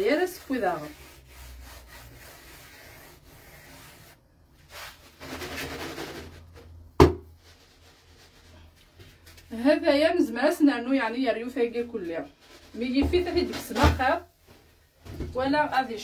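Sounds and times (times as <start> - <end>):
hands rubbing bread dough: 0.0 - 6.5, 7.3 - 9.6.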